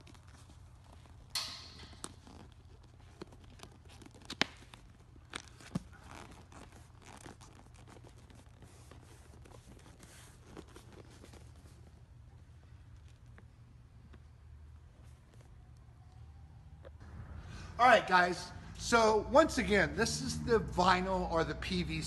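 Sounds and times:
vinyl material rasping: 1.9 - 13.5.

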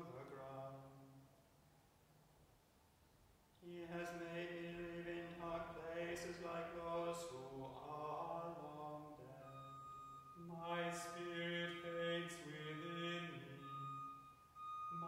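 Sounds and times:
man chanting plainsong: 3.6 - 9.6, 10.4 - 13.9.

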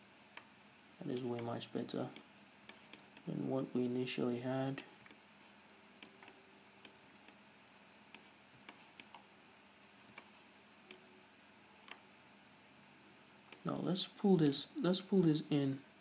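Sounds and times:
mouse and keyboard clicks: 8.1 - 9.2.

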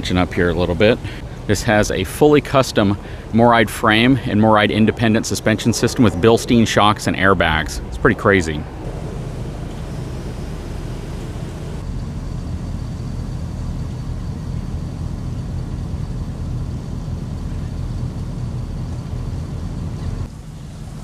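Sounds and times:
air compressor humming and whining: 0.0 - 21.0.

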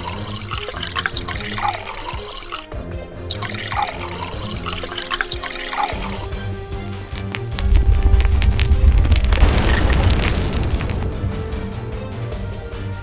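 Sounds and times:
background music: 0.0 - 13.0
slurry pouring and dripping onto sand: 3.3 - 11.4.

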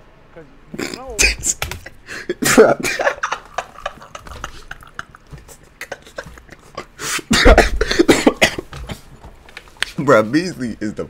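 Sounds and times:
man laughing hard: 0.8 - 8.7.

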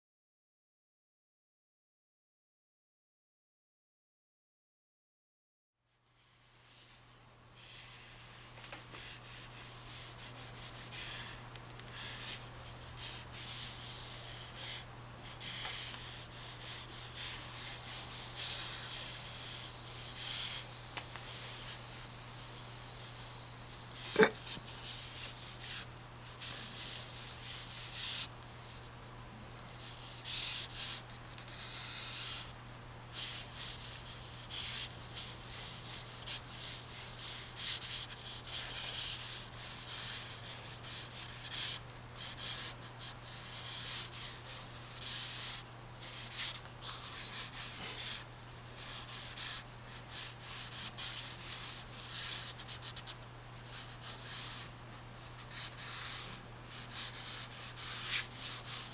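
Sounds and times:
steady low hum: 5.8 - 58.9
drawing stick scratching paper: 7.6 - 20.6, 21.3 - 22.1, 24.0 - 28.3, 29.7 - 32.5, 33.1 - 58.9.

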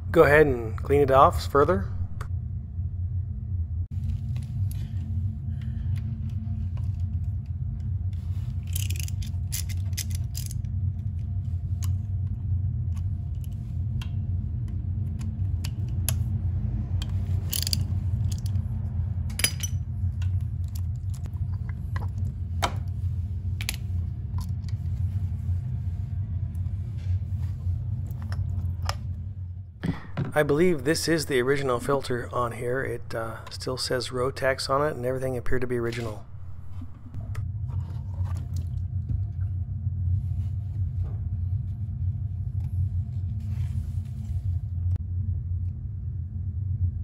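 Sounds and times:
steady low hum: 0.0 - 47.0
metal tools clinking: 17.5 - 18.6, 19.3 - 19.8.

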